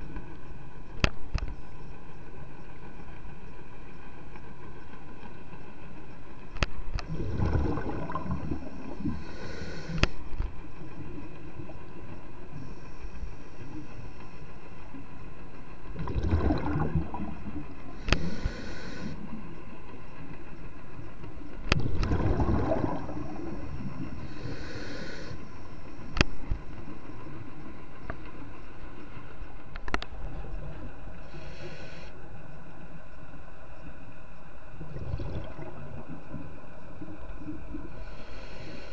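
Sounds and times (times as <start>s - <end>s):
exhaled air bubbling underwater: 6.9s - 11.8s, 15.9s - 19.4s, 21.6s - 27.0s, 34.7s - 38.9s
regulator inhale hiss: 8.7s - 10.4s, 12.5s - 14.5s, 17.9s - 19.4s, 23.2s - 26.0s, 31.1s - 32.2s, 37.9s - 38.9s.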